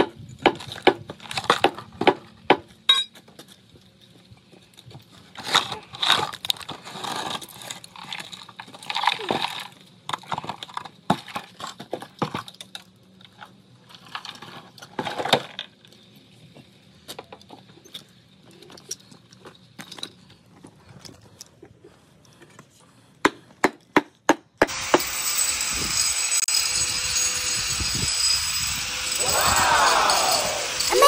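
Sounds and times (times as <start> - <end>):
power grinder whining: 24.6 - 31.0.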